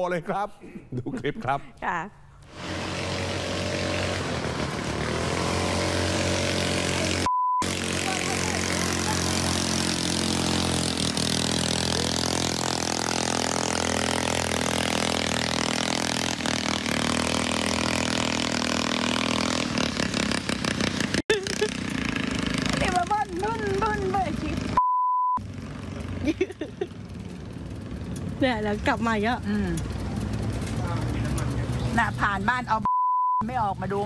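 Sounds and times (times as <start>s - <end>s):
motorboat engine revving: 2.4s - 24.8s, 25.4s - 32.9s
short beep: 7.3s - 7.6s, 24.8s - 25.4s, 32.9s - 33.5s.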